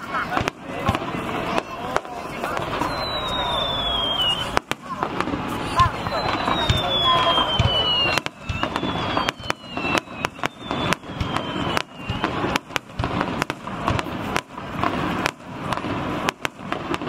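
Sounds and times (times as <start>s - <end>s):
firework shells bursting: 0.0s - 17.0s
high falling whistle: 2.7s - 4.6s, 5.9s - 12.6s.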